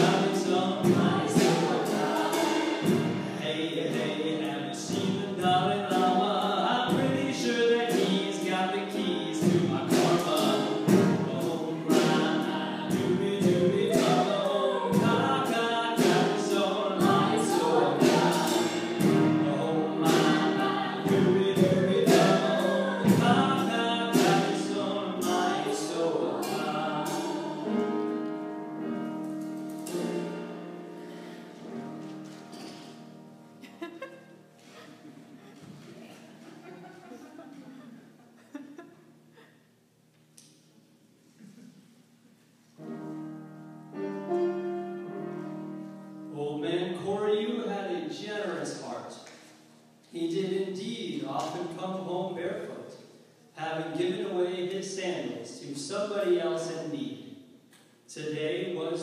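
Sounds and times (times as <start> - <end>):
choir singing: 0.0 - 4.2, 9.6 - 28.6.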